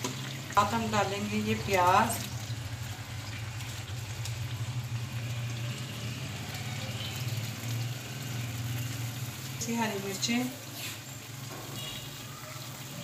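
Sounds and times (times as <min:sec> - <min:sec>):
food sizzling in a pan: 0:00.0 - 0:13.0.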